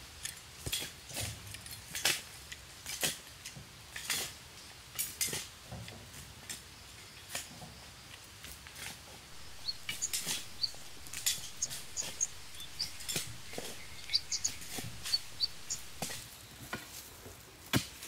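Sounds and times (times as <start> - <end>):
light clicks and scrapes: 8.7 - 17.1
short high bird chirps: 9.4 - 16.2.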